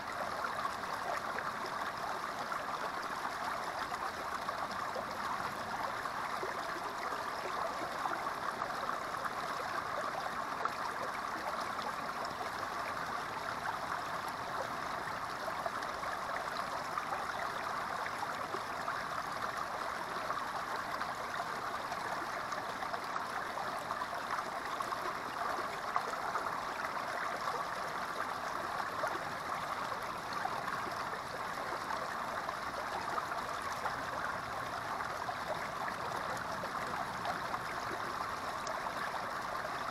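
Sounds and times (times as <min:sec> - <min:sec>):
creek water rushing and splashing: 0:00.0 - 0:39.9.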